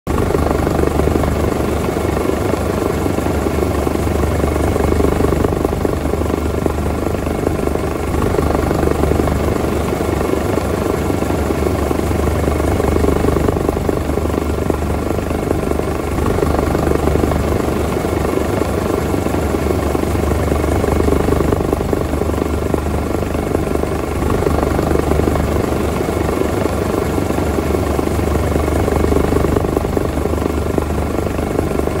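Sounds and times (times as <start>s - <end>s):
helicopter rotor chop: 0.1s - 32.0s
turbine engine whine: 0.1s - 32.0s.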